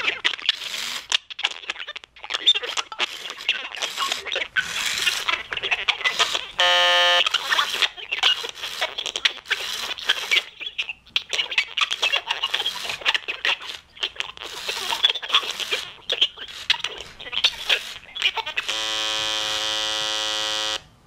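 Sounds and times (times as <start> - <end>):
toy figure crackling and clicking: 0.0 - 20.8.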